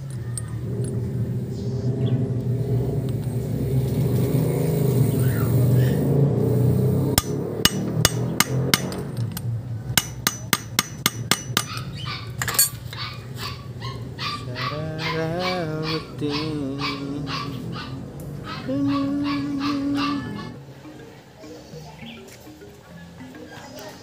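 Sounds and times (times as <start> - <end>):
steady low hum: 0.0 - 21.0
hammer tapping on metal: 7.2 - 9.4, 10.0 - 12.7.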